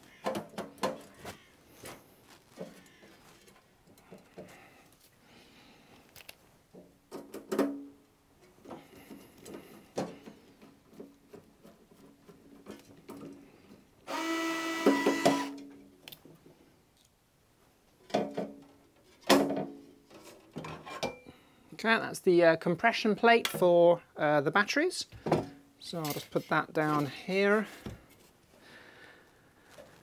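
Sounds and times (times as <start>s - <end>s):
electric screwdriver running: 14.1s - 15.6s.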